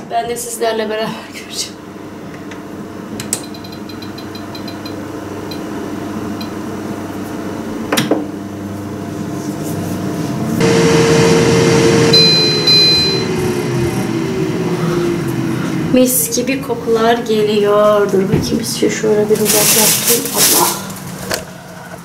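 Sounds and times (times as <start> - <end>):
air fryer fan hum: 0.0 - 22.0
short high beeps: 12.1 - 13.4.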